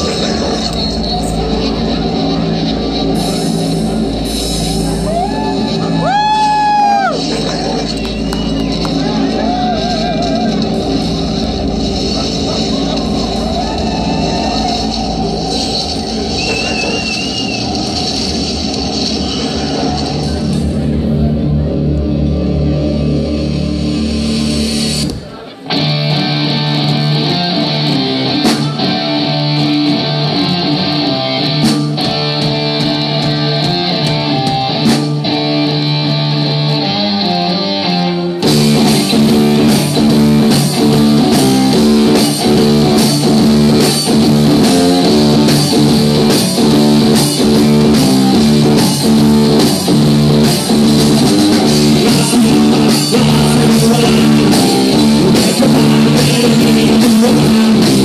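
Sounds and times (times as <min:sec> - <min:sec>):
drum kit beat: 0:00.0 - 0:20.7, 0:23.8 - 0:37.0, 0:38.4 - 0:58.0
electric guitar riff: 0:17.6 - 0:58.0.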